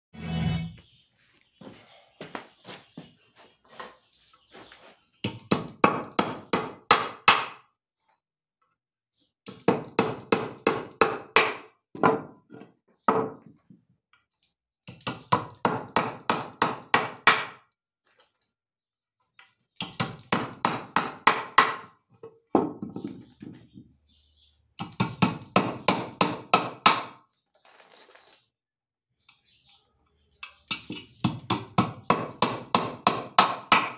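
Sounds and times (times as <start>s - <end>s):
hammer driving nails into wood: 30.7s - 33.9s.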